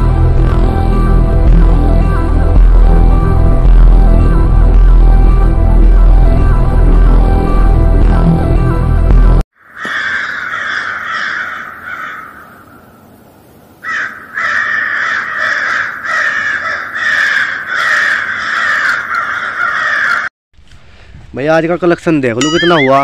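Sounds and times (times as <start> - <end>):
crows cawing: 9.6 - 13.0, 13.8 - 20.3.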